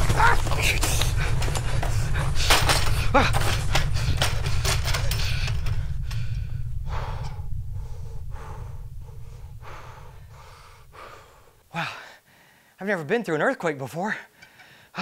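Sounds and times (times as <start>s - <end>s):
low earthquake rumble: 0.0s - 11.8s
man gasping: 10.0s - 12.8s, 14.4s - 15.0s.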